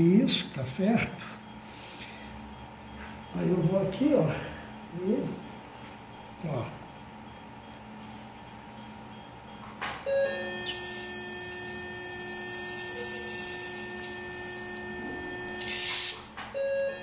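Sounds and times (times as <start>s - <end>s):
cautery unit activation tone: 0.0s - 17.0s
hiss of cauterising: 10.7s - 14.7s, 15.6s - 16.2s.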